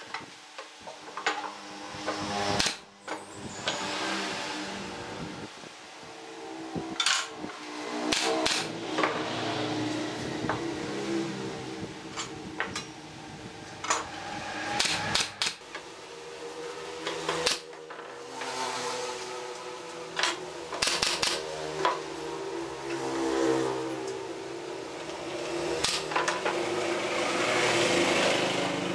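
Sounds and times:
steady hum: 0.0 - 18.2.

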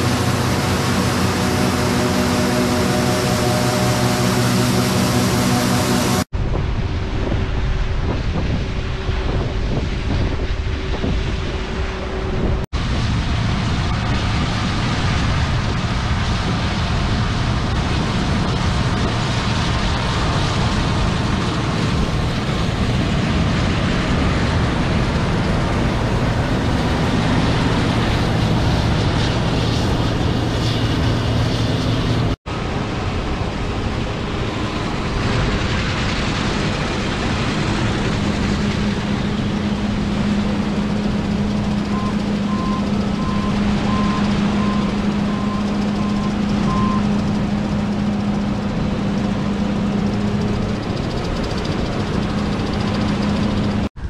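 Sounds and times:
combine engine and threshing: 0.0 - 54.0.

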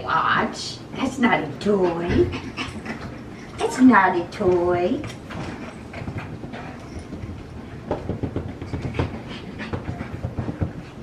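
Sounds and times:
puppies panting: 1.6 - 4.2, 5.3 - 11.0
paws clicking and rustling on blanket: 4.5 - 11.0.

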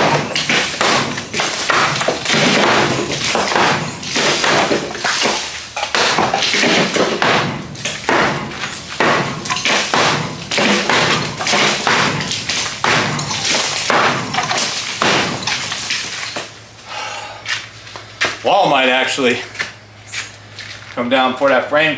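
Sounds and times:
sledgehammer pounding concrete block: 0.0 - 16.5.

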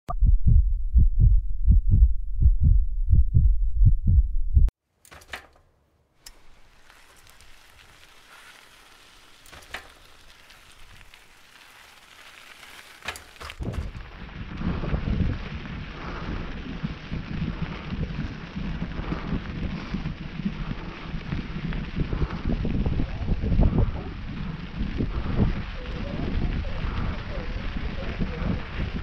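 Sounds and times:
deep regular thuds: 0.1 - 4.7, 13.4 - 25.7
wind noise on microphone: 13.4 - 29.0.

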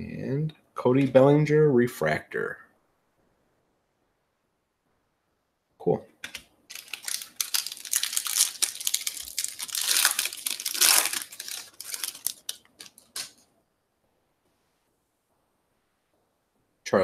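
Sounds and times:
foil wrapper crinkling and tearing: 6.7 - 13.4.

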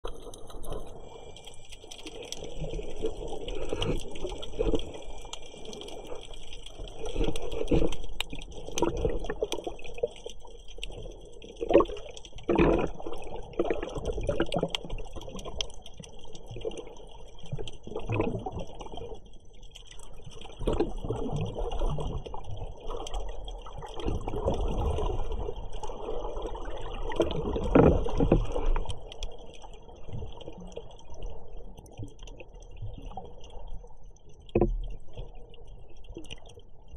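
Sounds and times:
small clicks and knocks: 34.4 - 35.3.

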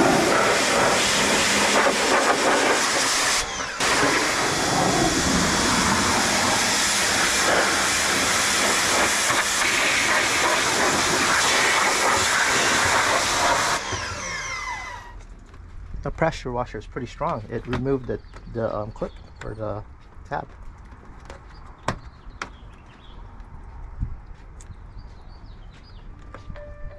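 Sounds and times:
pressure washer water jet spraying: 0.0 - 14.4.

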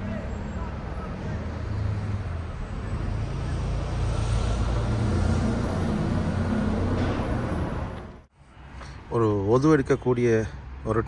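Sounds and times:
road noise: 0.0 - 11.0
vehicle engine drone: 1.0 - 9.0.

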